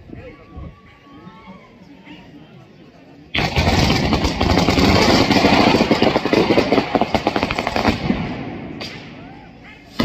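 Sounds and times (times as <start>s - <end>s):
string of firecrackers popping: 3.4s - 9.3s.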